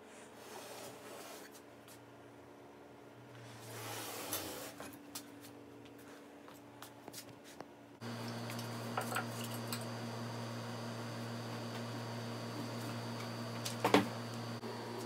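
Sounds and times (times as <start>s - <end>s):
steady low hum: 7.7s - 15.0s.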